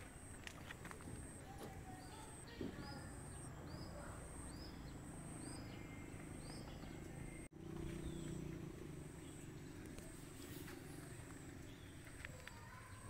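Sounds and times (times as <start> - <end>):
insects chirping: 0.0 - 7.5.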